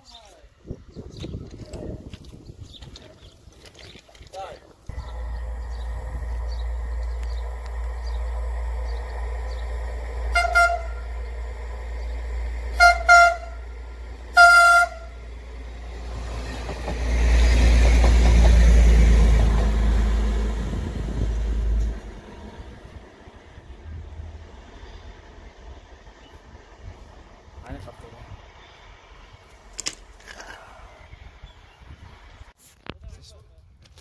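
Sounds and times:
train engine and wheels passing: 0:04.6 - 0:32.6
train horn toots: 0:10.2 - 0:11.3, 0:12.7 - 0:15.3.

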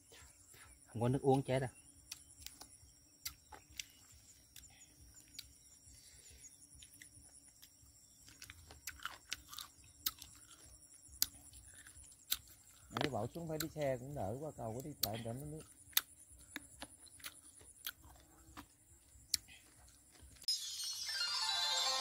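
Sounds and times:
person chewing food: 0:02.0 - 0:05.7, 0:06.8 - 0:13.8, 0:15.0 - 0:20.5.

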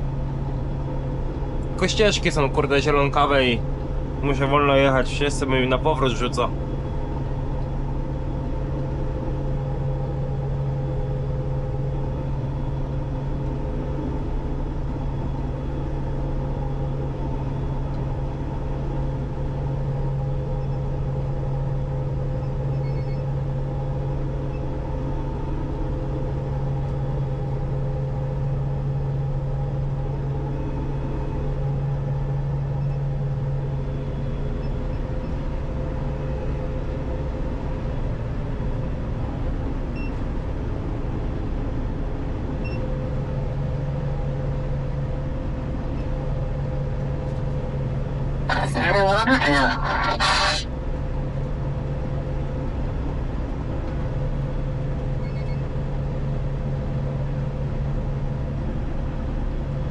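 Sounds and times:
combine harvester running: 0:48.5 - 0:50.7.

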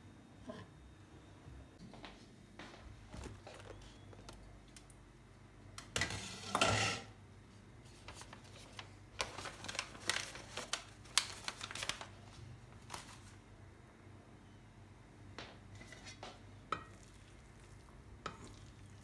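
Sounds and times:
paper crinkling: 0:07.9 - 0:13.4.

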